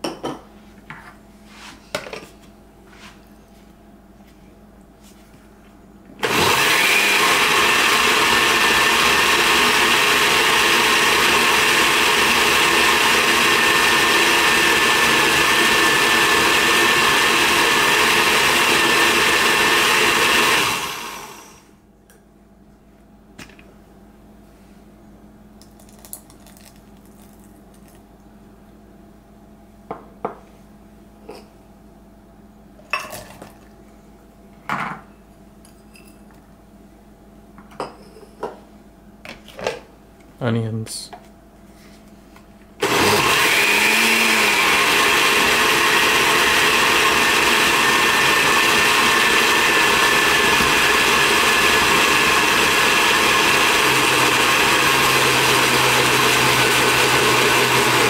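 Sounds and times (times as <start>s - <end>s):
blender running: 6.2s - 21.7s, 42.8s - 58.0s.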